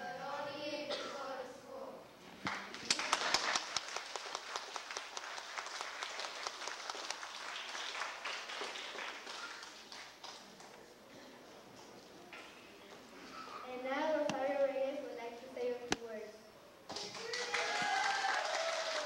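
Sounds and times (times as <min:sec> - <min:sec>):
audience applauding: 0:02.5 - 0:10.9, 0:16.9 - 0:19.0.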